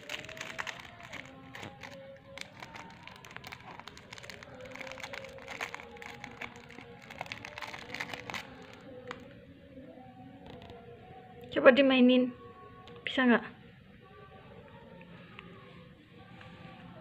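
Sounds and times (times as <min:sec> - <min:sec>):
plastic wrapper crinkling: 0:00.0 - 0:09.4.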